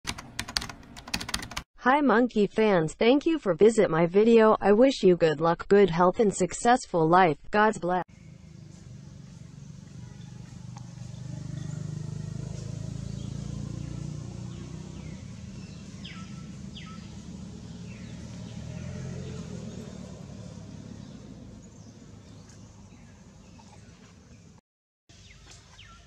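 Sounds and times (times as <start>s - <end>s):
low rumble of distant traffic: 8.1s - 24.6s
short high falling calls: 15.0s - 18.3s.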